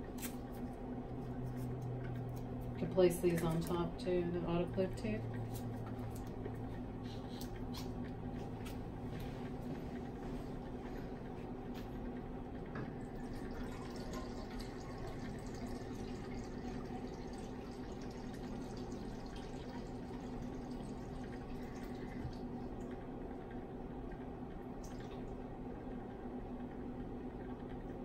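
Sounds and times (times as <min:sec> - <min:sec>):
hot plate hum: 0:00.0 - 0:28.0.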